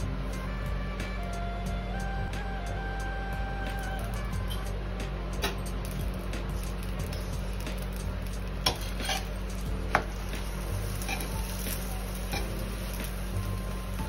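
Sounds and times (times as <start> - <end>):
light sizzle: 0.0 - 14.0
steel spatula scraping on a griddle: 6.6 - 13.6.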